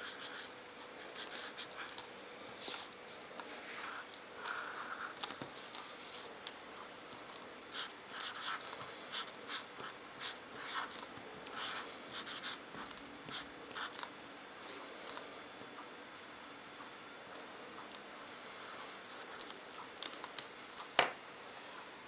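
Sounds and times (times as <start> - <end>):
marker pen scratching on paper: 0.0 - 2.0, 2.6 - 6.3, 7.2 - 14.0.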